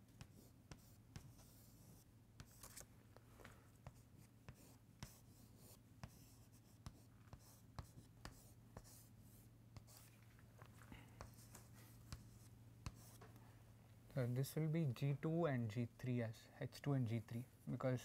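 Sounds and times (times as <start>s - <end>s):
chalk scratching on chalkboard: 0.2s - 2.8s.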